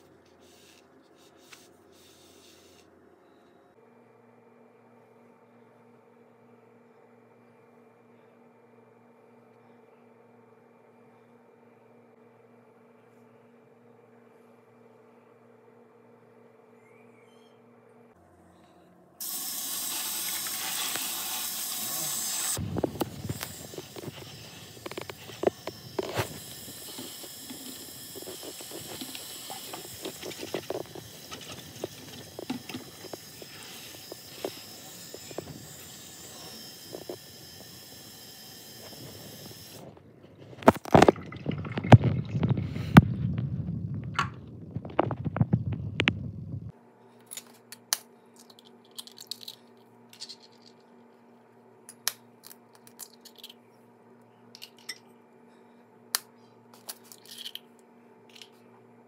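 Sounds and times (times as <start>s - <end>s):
tap water running into colander: 19.2s - 39.8s
steady hum: 20.9s - 47.1s.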